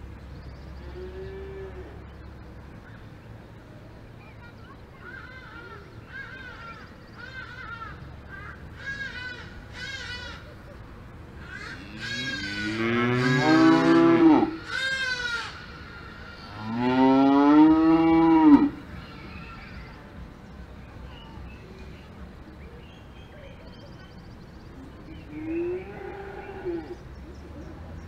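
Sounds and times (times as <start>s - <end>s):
cows mooing: 11.7s - 15.4s, 16.5s - 18.8s.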